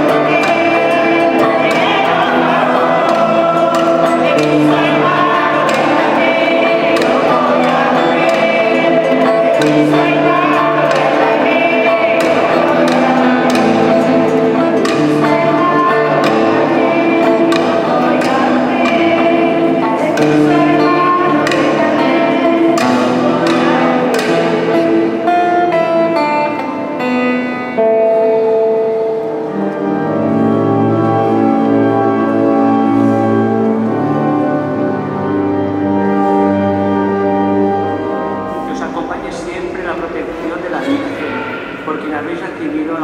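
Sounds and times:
sharp percussive strikes: 0.0 - 25.6
group singing a hymn: 0.0 - 42.4
acoustic guitars: 0.0 - 43.0.

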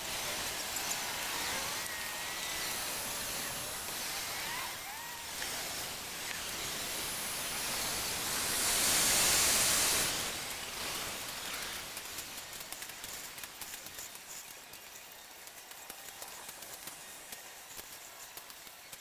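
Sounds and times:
outdoor hiss: 0.0 - 19.0.

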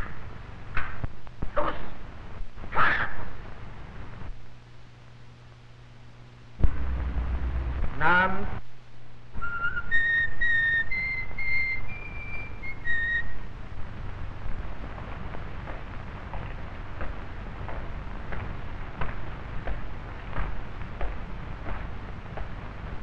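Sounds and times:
steady low hum: 0.0 - 23.0
sudden noise burst: 6.6 - 8.7
person whistling a tune: 9.4 - 13.4.

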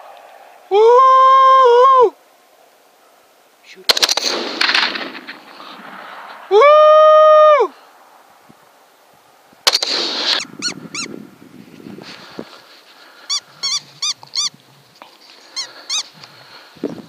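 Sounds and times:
sharp crack: 3.8 - 8.2, 9.6 - 10.7
rush of noise: 4.3 - 8.8
high-pitched yelps: 10.2 - 11.1, 15.6 - 16.1.

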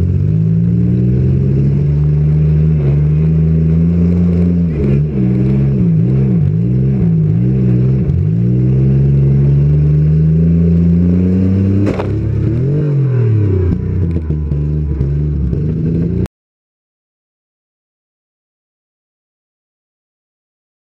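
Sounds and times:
car engine revving: 0.0 - 16.3
sharp bang: 11.8 - 12.4.

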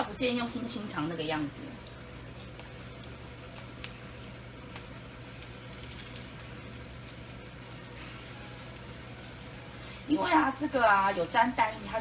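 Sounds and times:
low steady hum: 0.0 - 12.0
sausage sizzling in a frying pan: 0.0 - 12.0
chopsticks clicking against pan: 1.8 - 4.0.

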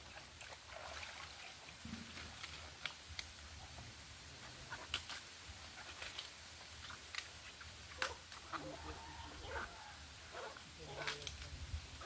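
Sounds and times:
cabbage leaves snapping: 4.9 - 5.2, 6.9 - 8.4.

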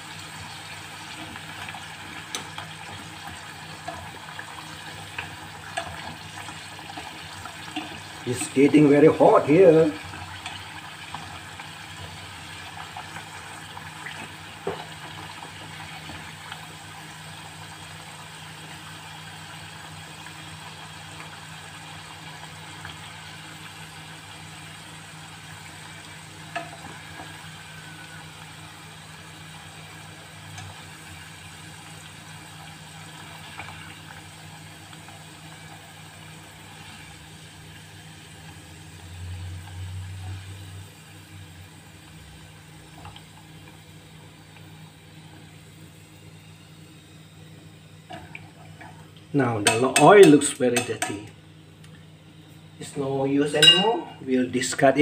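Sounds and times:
food deep-frying in hot oil: 0.0 - 55.0
chopsticks knocking pan: 53.6 - 54.0.

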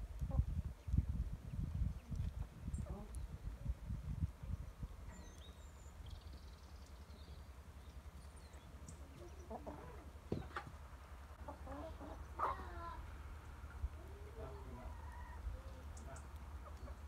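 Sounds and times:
chickens clucking: 0.2 - 0.6, 2.4 - 3.5, 8.6 - 17.0.

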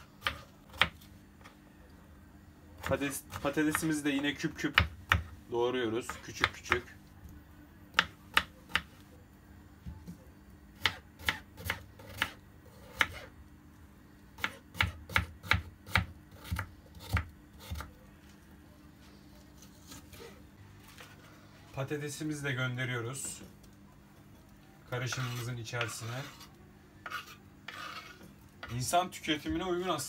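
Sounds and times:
knife chopping on wooden board: 0.2 - 1.0, 4.6 - 5.3, 7.9 - 8.9, 10.8 - 13.3, 14.4 - 17.9.

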